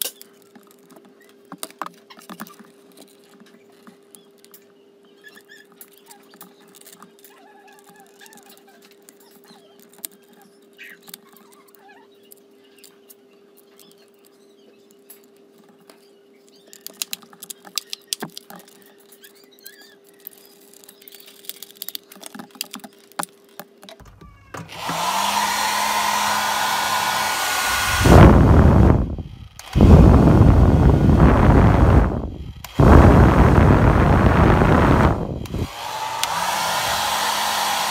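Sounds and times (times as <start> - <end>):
hair dryer motor and air rush: 24.6 - 37.9.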